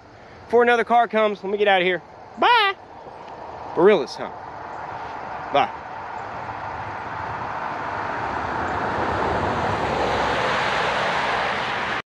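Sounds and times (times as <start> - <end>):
car tyre and road noise: 0.0 - 12.0.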